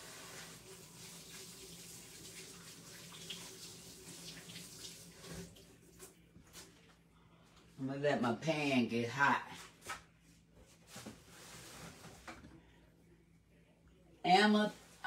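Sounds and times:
faucet running into steel sink: 0.6s - 5.7s.

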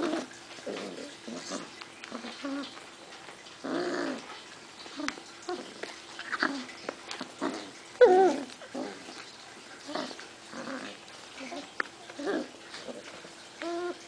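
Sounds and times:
puppies whimpering and yipping: 4.9s - 14.0s.

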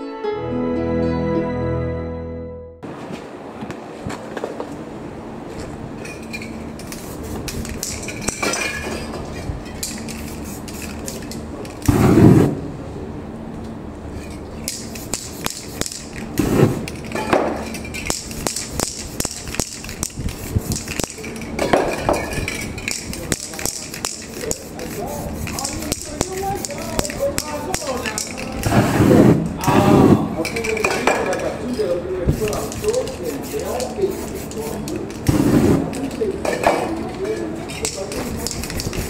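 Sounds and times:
spray can ball rattling: 6.0s - 12.0s, 14.6s - 28.8s, 30.4s - 39.0s
spray hissing: 6.9s - 8.2s, 10.1s - 12.5s, 14.7s - 16.9s, 18.1s - 21.4s, 22.9s - 29.5s, 32.3s - 36.0s, 38.0s - 39.0s.

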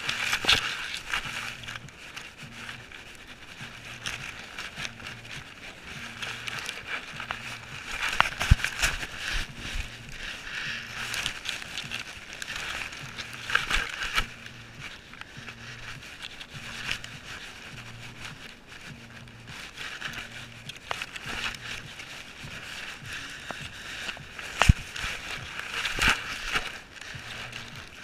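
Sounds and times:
faint low pulse: 0.0s - 26.2s, 27.1s - 27.9s
grass brushing against camera: 0.0s - 28.0s.

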